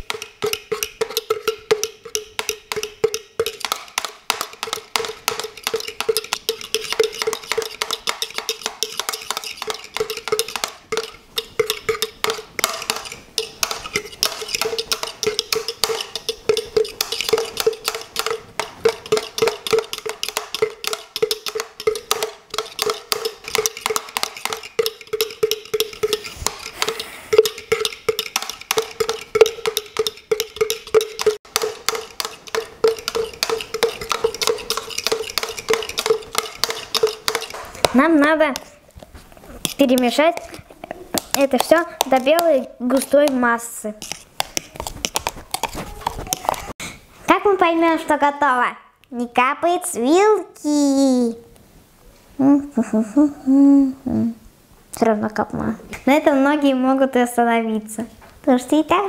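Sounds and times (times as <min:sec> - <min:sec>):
fork whisking in a jug: 0:00.0 - 0:46.8.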